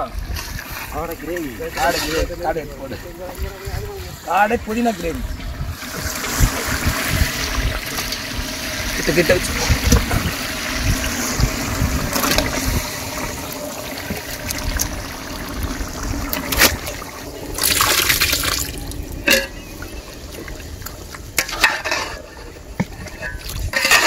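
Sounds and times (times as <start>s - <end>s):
gravy bubbling in pot: 5.5s - 23.9s
wet splash: 5.8s - 21.2s.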